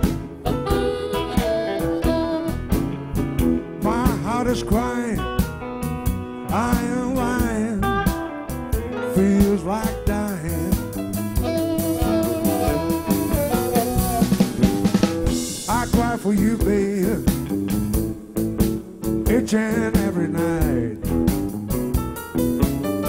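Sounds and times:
drum kit beat: 0.0 - 23.0
keyboard: 0.0 - 23.0
bending lead lines: 9.6 - 17.2.

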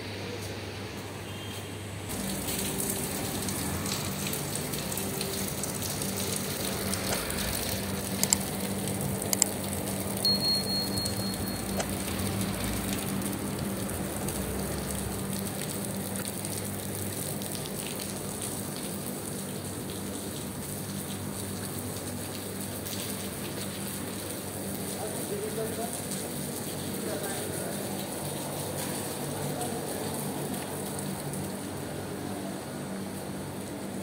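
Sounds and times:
heavy rain hissing: 2.1 - 10.3, 11.1 - 19.1
low steady hum: 2.1 - 19.6
short high tone: 10.2 - 11.8.

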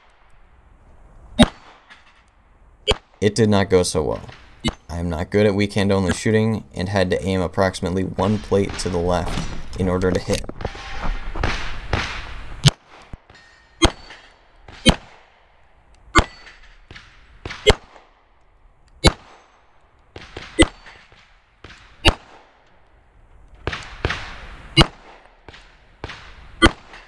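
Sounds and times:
pistol shots: 1.4 - 1.9, 10.6 - 15.5, 16.1 - 18.2, 19.0 - 22.6, 23.6 - 27.0.

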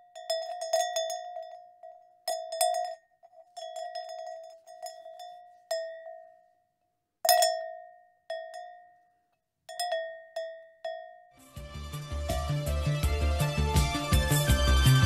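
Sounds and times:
cowbell clanking: 0.0 - 6.6, 7.2 - 11.3, 12.3 - 12.7.

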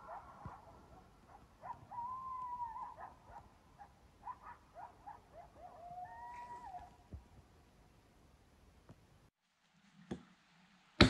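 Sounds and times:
faint animal yelping calls: 0.0 - 7.0.

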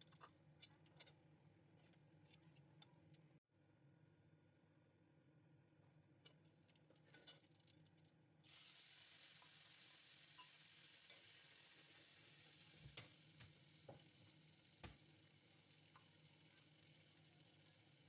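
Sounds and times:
spices sizzling in hot oil: 6.5 - 18.0.

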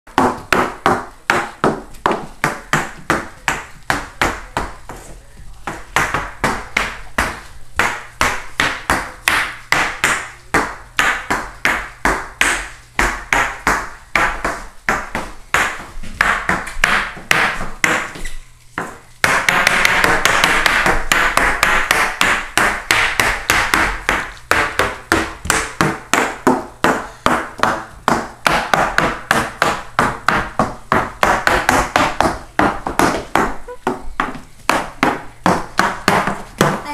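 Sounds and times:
toddler footsteps in hard shoes: 14.2 - 36.9.

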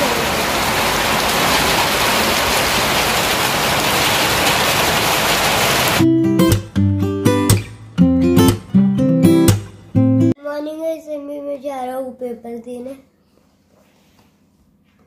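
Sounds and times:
rain on paving: 0.0 - 6.1
acoustic guitar music: 6.0 - 11.4.

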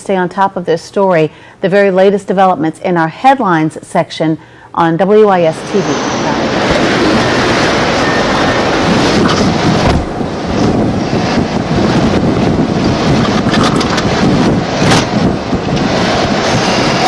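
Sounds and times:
loud steady rushing noise: 5.1 - 17.0.

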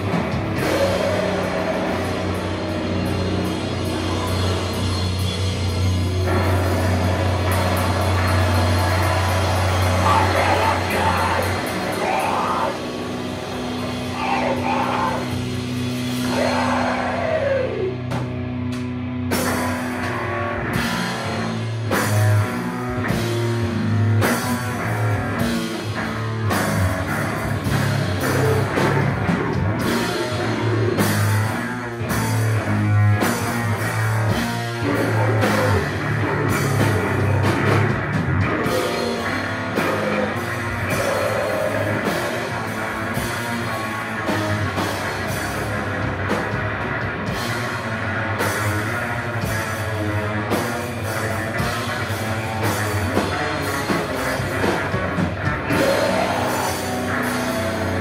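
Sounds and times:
vocals: 0.0 - 2.7, 9.8 - 13.1, 14.0 - 15.5, 16.2 - 18.1, 34.7 - 37.7, 38.4 - 43.4, 55.6 - 58.0
drums: 0.0 - 58.0
heavy metal band playing: 0.0 - 58.0.

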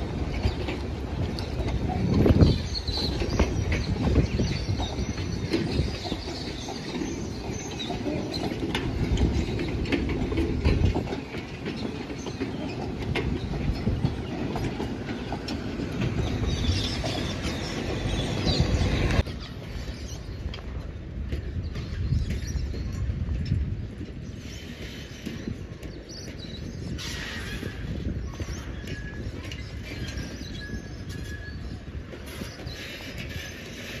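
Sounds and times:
train wheels rumbling and clicking: 0.0 - 34.0.

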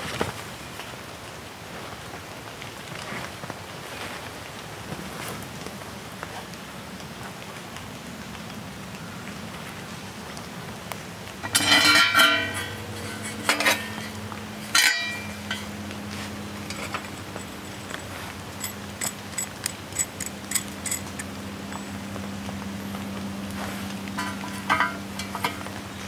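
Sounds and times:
rain hissing: 0.0 - 26.0
metal cookware clattering: 11.4 - 21.8, 24.1 - 26.0.

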